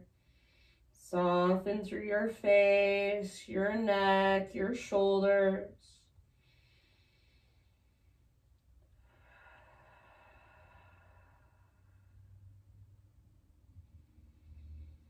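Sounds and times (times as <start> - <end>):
person breathing out slowly: 9.0 - 12.4.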